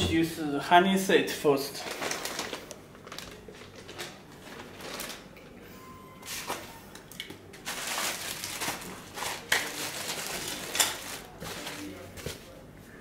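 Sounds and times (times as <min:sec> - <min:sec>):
plastic bags crinkling: 0:01.8 - 0:05.5, 0:07.5 - 0:12.4.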